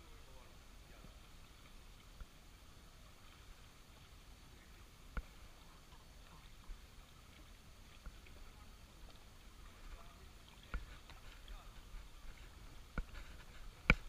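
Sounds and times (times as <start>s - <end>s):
quiet background hiss: 0.0s - 14.0s.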